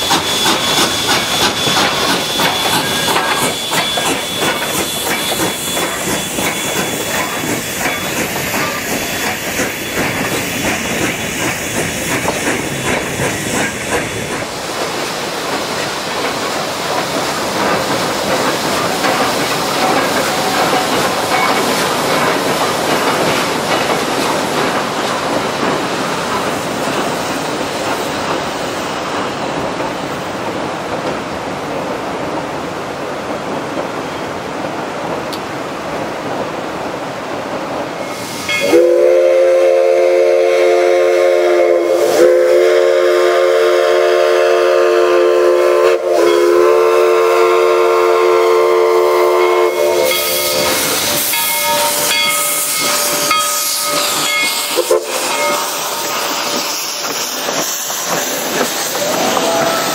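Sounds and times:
steam locomotive exhaust: 0.0s - 29.3s, 38.0s - 59.9s
train rolling over steel bridge: 0.0s - 59.9s
river rushing: 14.0s - 38.8s, 49.7s - 59.9s.

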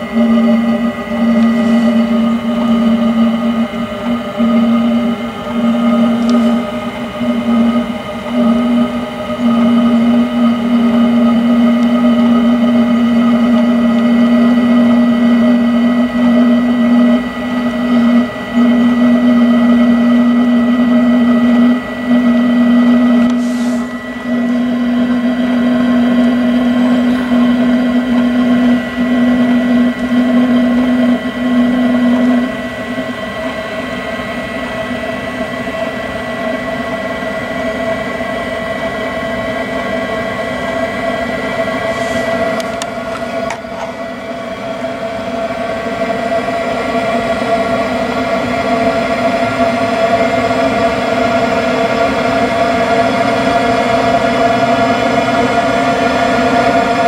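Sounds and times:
heater blower motor humming: 0.0s - 57.0s.

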